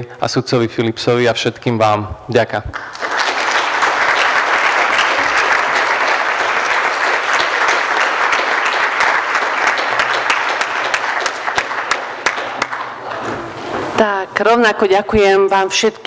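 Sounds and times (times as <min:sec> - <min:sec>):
audience applauding: 0:02.7 - 0:13.6.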